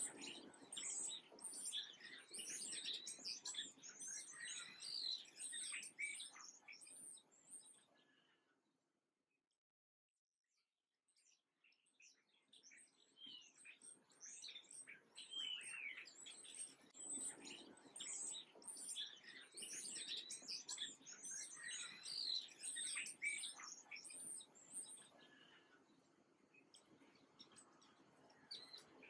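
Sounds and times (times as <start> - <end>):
songbirds chirping: 0.0 - 8.6, 11.1 - 29.0.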